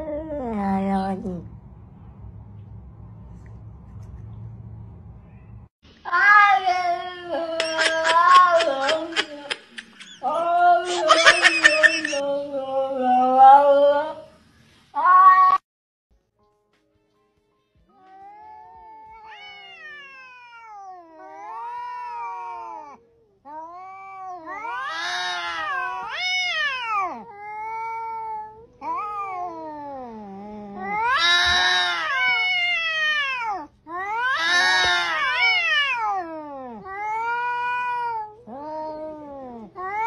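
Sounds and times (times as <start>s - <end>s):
cats yowling: 18.0s - 40.0s.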